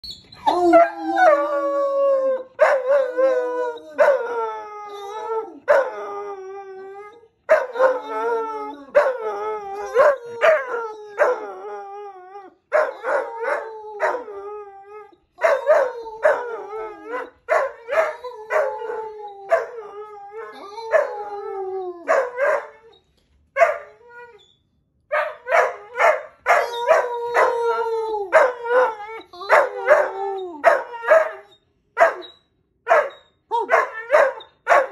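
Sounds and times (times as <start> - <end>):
puppy howling: 0.4 - 22.9, 25.4 - 31.6
puppy barks and yips: 23.6 - 24.0, 29.5 - 34.9.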